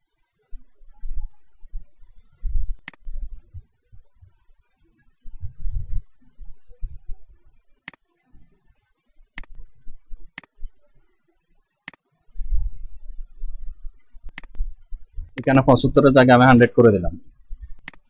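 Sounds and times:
computer mouse clicking: 2.8 - 3.1, 9.4 - 9.7, 14.3 - 14.6, 17.8 - 18.0.

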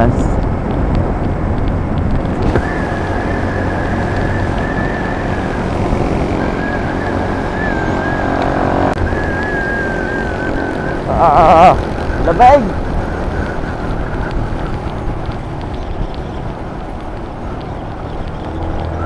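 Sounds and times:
motorcycle engine running steadily: 0.0 - 19.0
wind rush on microphone: 0.0 - 19.0
thin high whine: 2.5 - 14.3.

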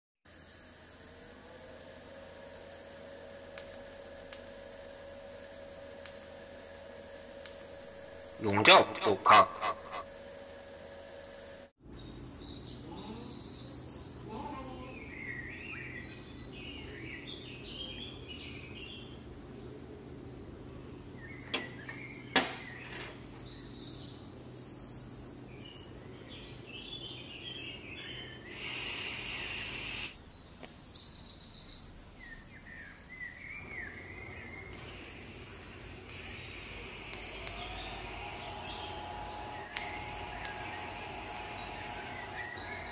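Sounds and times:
steady low hum: 0.3 - 22.3, 33.5 - 42.9
small birds chirping: 11.8 - 42.9
short burst of hiss: 28.5 - 30.2, 34.8 - 42.3.

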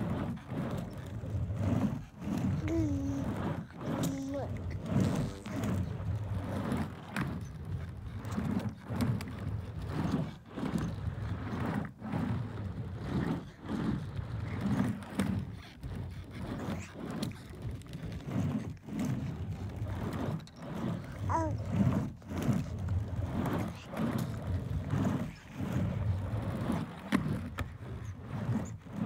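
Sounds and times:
skateboard clacks: 0.0 - 29.0
skateboard wheels rolling on ramp: 0.0 - 29.0.

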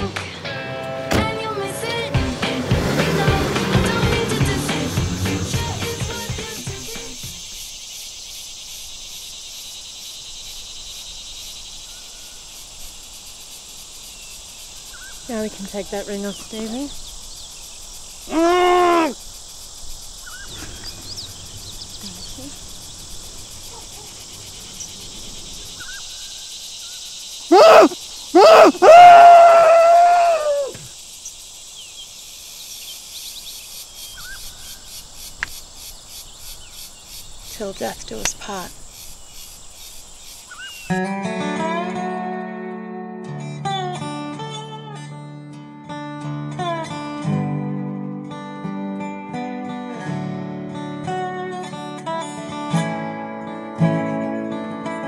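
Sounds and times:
insect chorus chirring: 3.1 - 41.0
person screaming: 18.3 - 19.2, 27.5 - 30.8.

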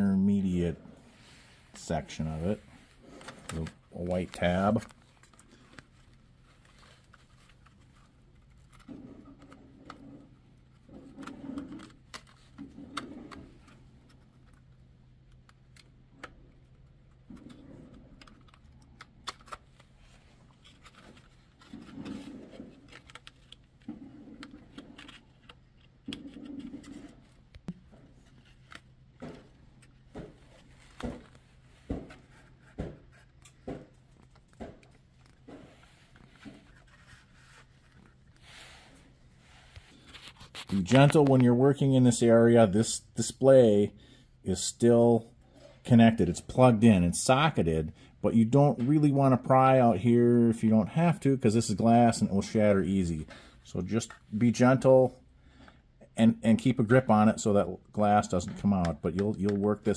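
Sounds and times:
plastic rubbing and scraping: 0.9 - 41.7.

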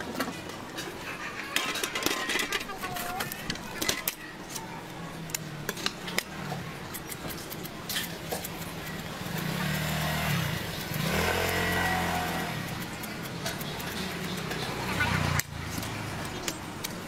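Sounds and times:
knife scraping coconut husk: 6.8 - 17.0
vehicle engine running: 8.6 - 16.4.

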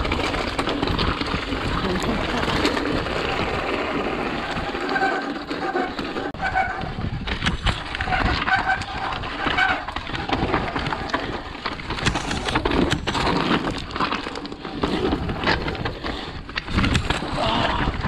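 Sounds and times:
bike knocking and rattling: 0.0 - 18.0
bike tyre noise: 0.0 - 18.0
wind rushing on microphone: 6.4 - 9.3.

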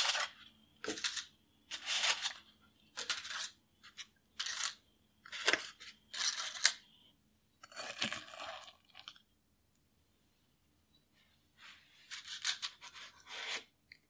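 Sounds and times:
batter stirring wet scraping: 7.6 - 9.2.

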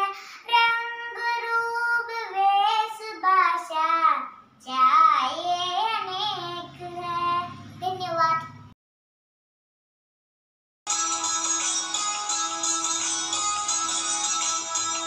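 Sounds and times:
girl singing: 0.0 - 8.6.

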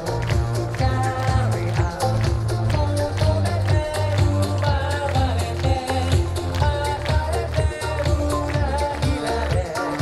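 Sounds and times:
hula song over loudspeakers: 0.0 - 10.0.

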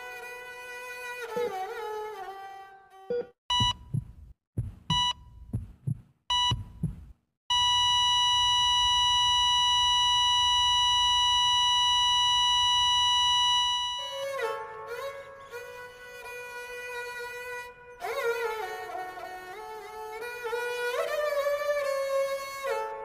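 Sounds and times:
violin melody: 0.0 - 3.4, 14.0 - 23.0
flatline alarm tone: 3.5 - 4.1, 4.9 - 5.3, 7.5 - 14.2
patient monitor beeps: 3.5 - 4.1, 4.9 - 5.3, 6.3 - 6.9
heartbeat thump: 3.5 - 7.3.

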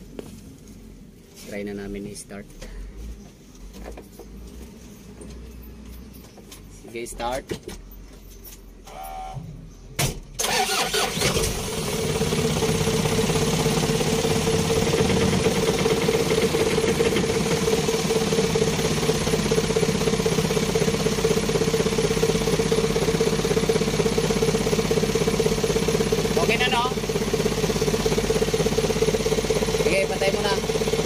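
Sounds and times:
vehicle engine starting and idling: 10.0 - 31.0.

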